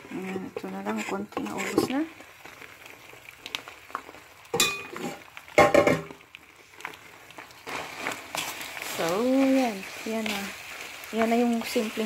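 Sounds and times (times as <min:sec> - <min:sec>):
wooden spatula scraping pan: 0:00.0 - 0:02.1.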